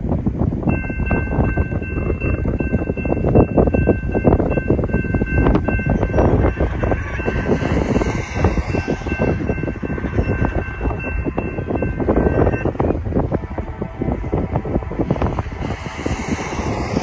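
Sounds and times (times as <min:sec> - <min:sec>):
wind buffeting microphone: 0:00.0 - 0:17.0
electronic crossing bell ringing: 0:00.7 - 0:12.9.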